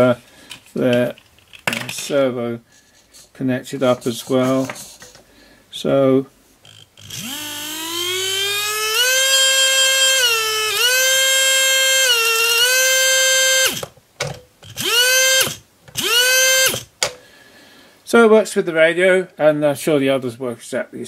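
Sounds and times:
electric motor whining: 6.6 - 13.9, 14.6 - 16.9.

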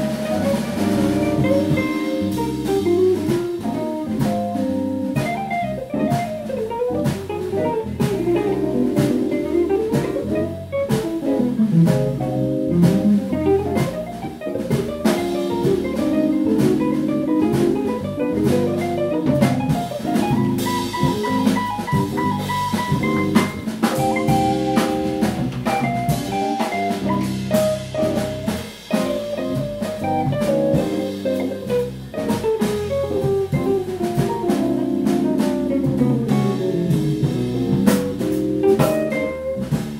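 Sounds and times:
drum kit cymbals and snare: 0.0 - 39.9
walking electric bass: 0.0 - 39.9
electric guitar solo: 5.2 - 11.9.

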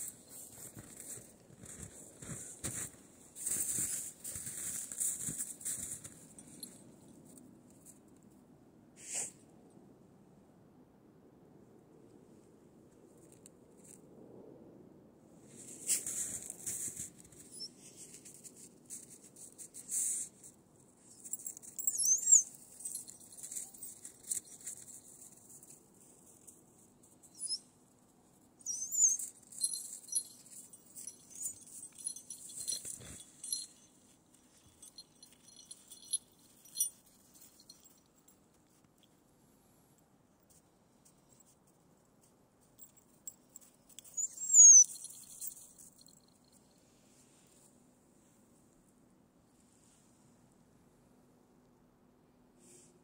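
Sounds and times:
footsteps crunching in snow: 0.0 - 6.3.

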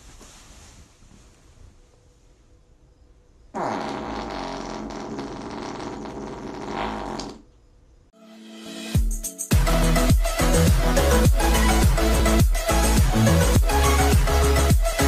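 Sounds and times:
long raspy fart: 3.5 - 7.5.

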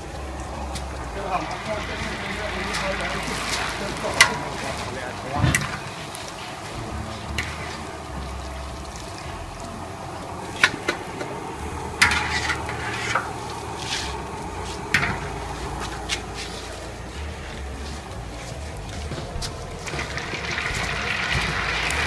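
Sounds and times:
metal utensils clinking on pans: 0.0 - 22.0
oil frying in a wok: 0.0 - 22.0.

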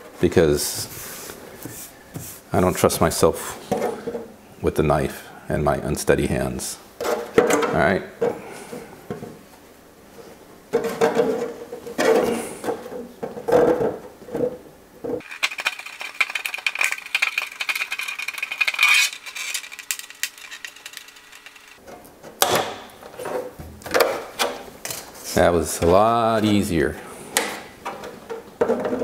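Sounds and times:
plastic shell crackling: 15.2 - 21.8.

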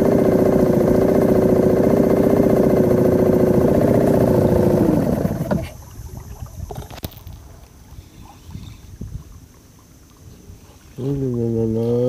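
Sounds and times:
boat engine running: 0.0 - 7.0, 7.9 - 12.0.

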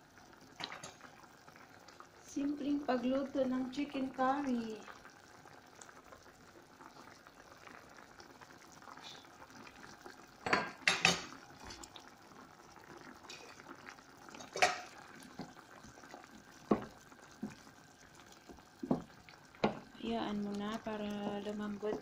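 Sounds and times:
curry simmering and bubbling: 0.0 - 22.0
utensil clinking against pot: 14.4 - 14.9.

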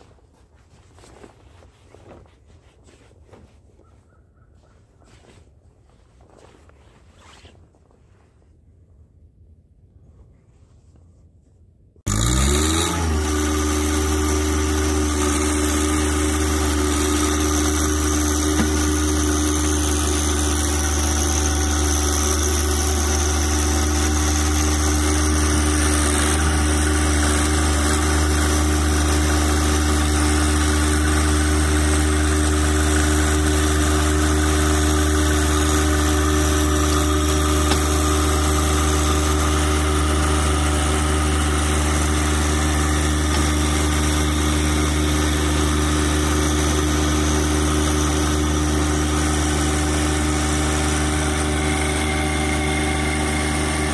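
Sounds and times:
tractor diesel engine revving: 12.1 - 53.9.

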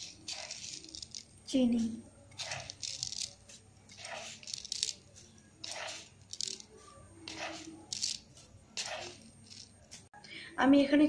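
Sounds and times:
sugar rustling onto batter: 0.0 - 10.1.

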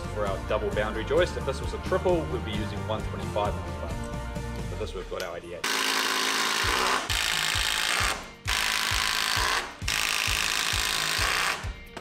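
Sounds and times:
impact driver driving screws: 5.6 - 12.0.

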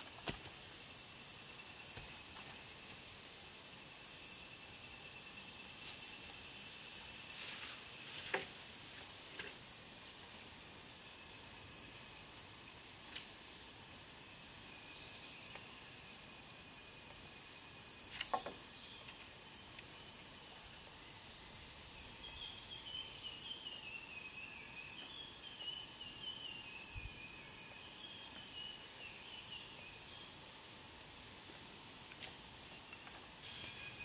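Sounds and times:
high-pitched insect drone: 0.0 - 34.0.

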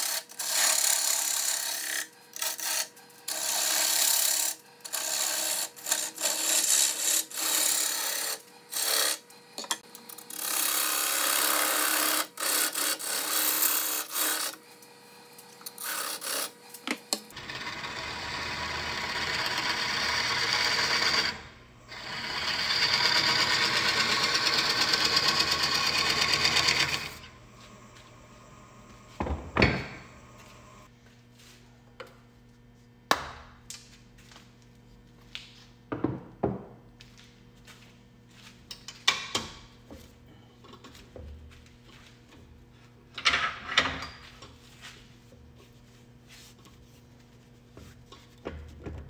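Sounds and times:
power tool on wood: 15.6 - 27.3.

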